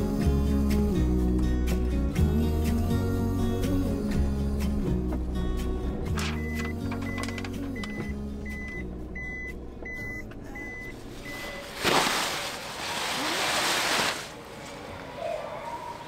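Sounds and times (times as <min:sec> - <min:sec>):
fabric cover rustling: 0:11.1 - 0:14.4.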